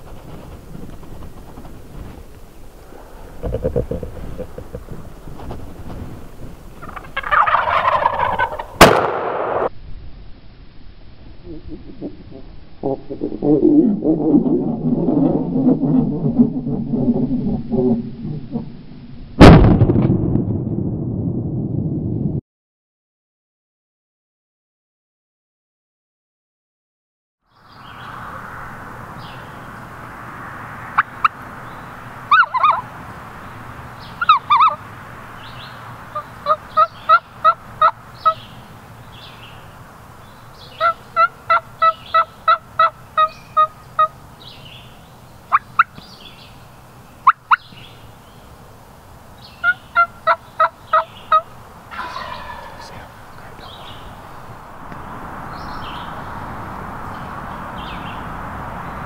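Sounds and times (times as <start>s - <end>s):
turkey clucks: 3.4s - 5.0s, 6.8s - 8.9s, 31.0s - 31.3s, 32.3s - 32.9s, 34.2s - 34.8s, 36.1s - 38.4s, 40.7s - 44.2s, 45.5s - 46.1s, 47.2s - 47.7s, 49.6s - 54.0s
turkey gobble: 3.4s - 5.0s, 6.8s - 8.9s, 32.3s - 32.9s, 34.2s - 34.8s, 36.1s - 38.4s, 40.7s - 44.1s, 45.5s - 45.9s, 47.2s - 47.7s, 49.6s - 53.1s
turkey yelps: 6.8s - 8.8s, 32.3s - 32.9s, 34.2s - 34.8s, 36.1s - 38.4s, 40.8s - 44.1s, 45.5s - 45.9s, 49.6s - 53.0s.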